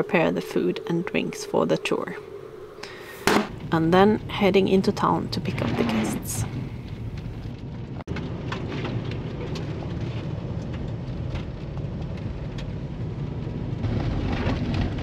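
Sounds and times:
light ticks and crackles: 6.8s - 13.1s.

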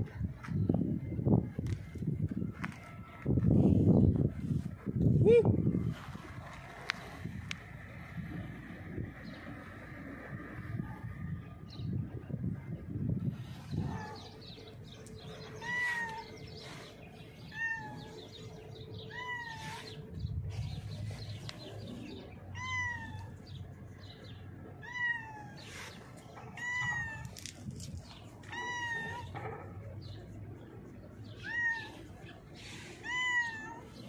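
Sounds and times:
cat meowing: 15.6s - 16.4s, 17.4s - 18.3s, 19.1s - 19.9s, 22.6s - 23.3s, 24.8s - 25.7s, 26.4s - 27.3s, 28.4s - 29.4s, 31.4s - 32.1s, 33.0s - 33.9s.

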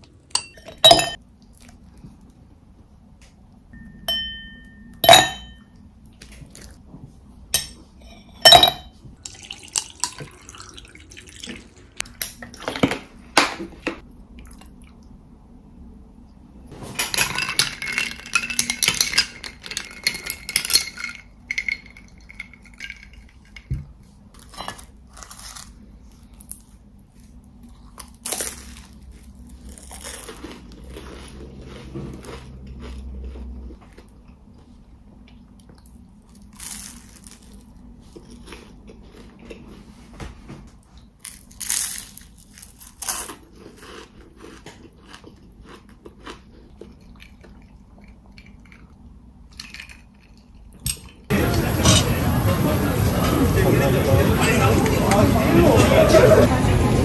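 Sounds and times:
liquid pouring into glass: 9.2s - 11.8s
ice cubes clinking into glass: 17.0s - 23.6s
ice rattling while stirred: 17.2s - 23.6s.

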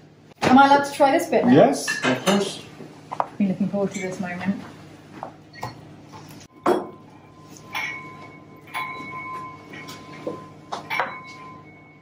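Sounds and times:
cutlery and plates clinking: 1.8s - 2.6s, 5.6s - 11.7s
faint high ringing tone: 6.4s - 12.0s.

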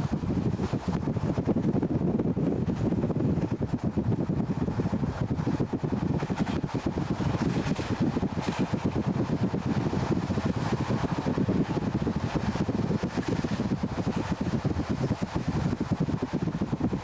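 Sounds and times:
steady low rumble: 0.0s - 17.0s
wind buffeting microphone: 0.0s - 17.0s.

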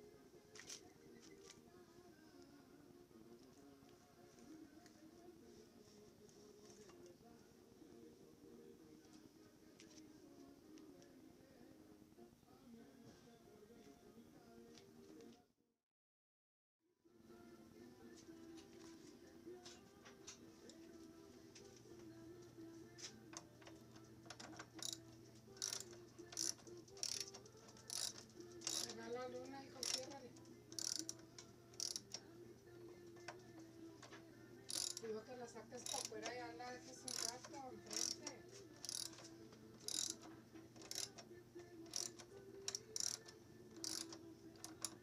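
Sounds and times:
ratchet wrench clicking: 23.7s - 29.0s, 29.8s - 31.2s, 31.8s - 32.2s, 34.7s - 35.0s, 35.8s - 36.4s, 37.0s - 41.3s, 41.9s - 45.0s.

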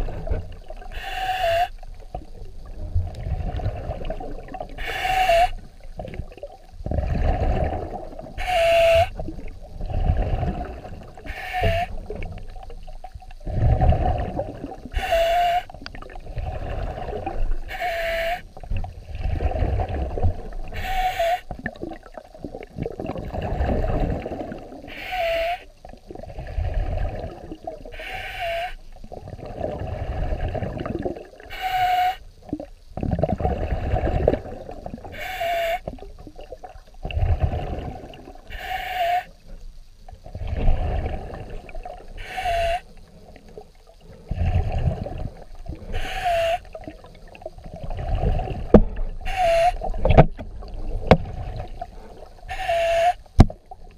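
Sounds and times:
low rumbling water noise: 0.0s - 53.9s
underwater hissing breath: 0.9s - 1.8s, 4.8s - 5.7s, 8.4s - 9.2s, 10.0s - 12.1s, 14.9s - 18.6s, 19.8s - 21.5s, 23.9s - 25.7s, 27.9s - 28.9s, 31.5s - 32.4s, 35.0s - 35.9s, 37.1s - 39.6s, 40.2s - 47.1s, 48.0s - 50.0s, 51.6s - 53.4s
short dipping whistle: 8.4s - 9.1s, 52.5s - 53.2s.

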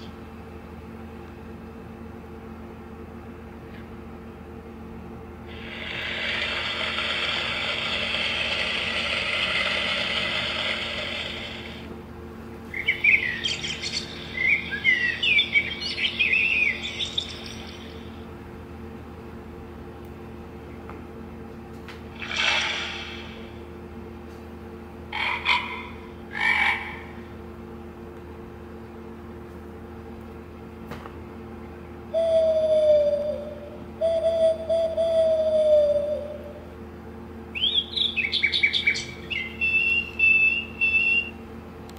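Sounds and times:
recorded baby bird chirping: 12.8s - 18.2s, 37.6s - 41.3s.

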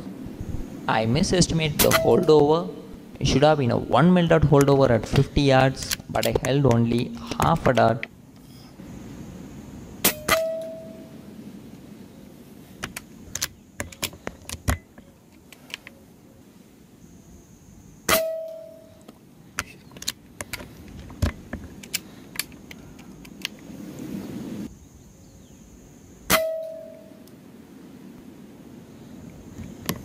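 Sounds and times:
air rifle shots with metallic ring: 1.8s - 2.4s, 10.0s - 11.0s, 18.1s - 18.8s.

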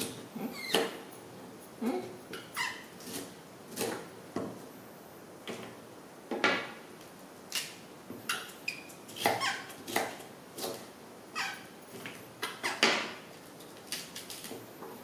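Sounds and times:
knife chopping on wooden block: 9.2s - 10.8s.

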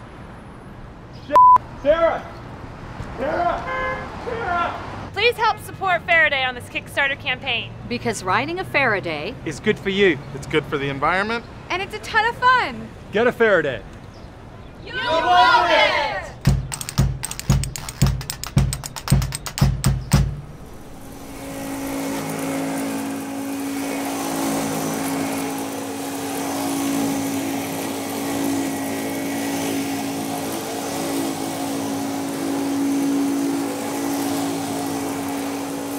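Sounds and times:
music drum beats: 16.4s - 20.4s
steady machine hum: 20.3s - 35.9s.

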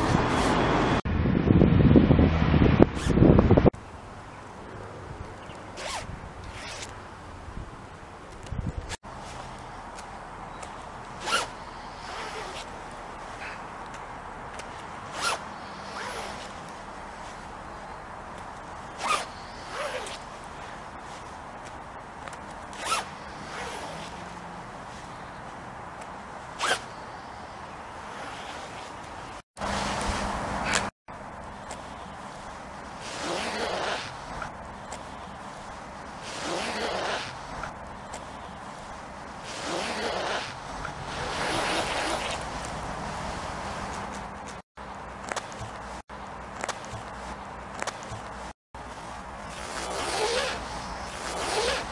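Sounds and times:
zip pulled up and down: 0.0s - 1.0s, 2.8s - 3.4s, 5.8s - 7.0s, 11.0s - 13.6s, 14.5s - 25.3s, 26.0s - 30.9s, 31.7s - 44.6s, 46.6s - 51.9s.

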